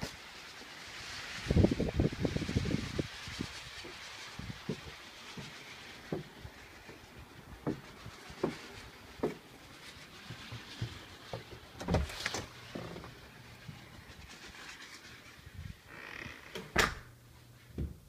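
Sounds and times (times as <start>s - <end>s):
footsteps on wooden steps: 7.6s - 8.6s, 9.2s - 9.4s, 10.3s - 13.1s, 17.8s - 18.0s
front door clattering open: 15.9s - 17.1s.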